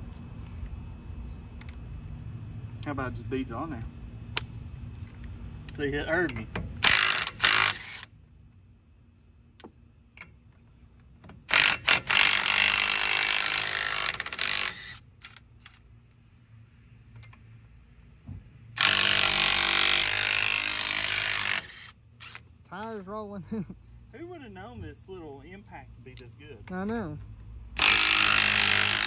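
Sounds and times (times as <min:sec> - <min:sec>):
impact wrench running: 0:06.8 - 0:08.1, 0:11.5 - 0:15.8, 0:18.8 - 0:22.5, 0:27.8 - 0:29.0.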